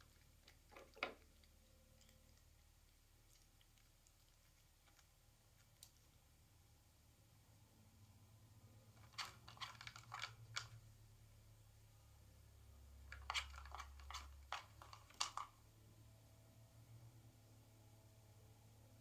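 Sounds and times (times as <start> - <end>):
plastic puzzle clicking and knocking: 9.0 - 10.8, 13.1 - 15.6.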